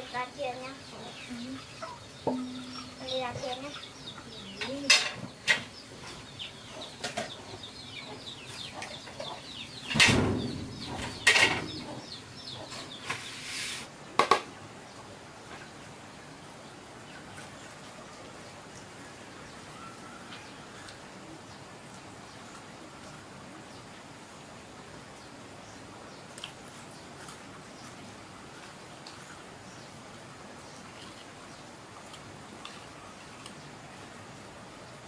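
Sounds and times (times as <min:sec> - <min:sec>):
sharp knocks: 0:02.2 - 0:03.0, 0:09.9 - 0:11.8
chicks peeping: 0:05.8 - 0:13.4.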